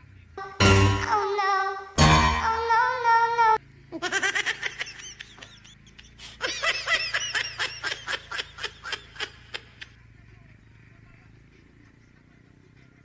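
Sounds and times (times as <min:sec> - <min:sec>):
person laughing: 0:03.9 - 0:10.0.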